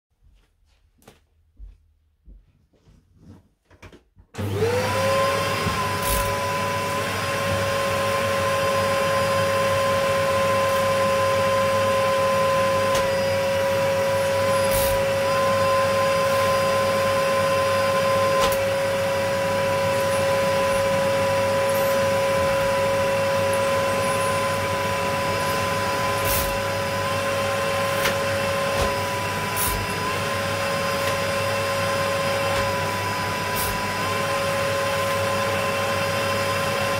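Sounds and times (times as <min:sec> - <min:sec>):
vacuum cleaner motor whine: 0:04.3 - 0:36.9
vacuum tool on carpet: 0:04.3 - 0:36.9.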